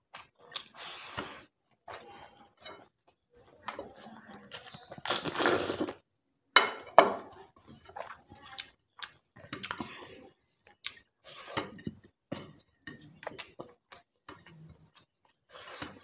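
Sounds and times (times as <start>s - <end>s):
chewing: 4.4s - 6.0s, 7.6s - 16.0s
slurping: 4.6s - 6.0s.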